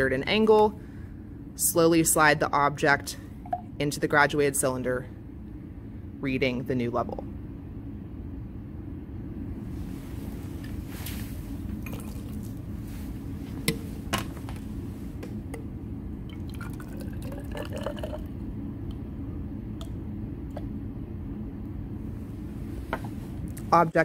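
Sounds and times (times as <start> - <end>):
low hum: 0.0 - 24.0
water pouring into glass cylinder: 11.8 - 12.6, 16.2 - 18.4.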